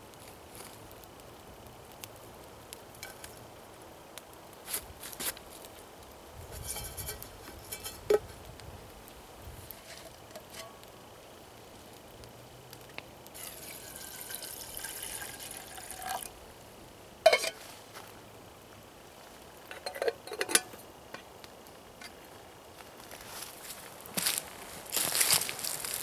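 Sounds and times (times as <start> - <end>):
liquid pouring into metal pot: 13.4 - 16.3
metal cookware clinks: 17.3 - 17.6.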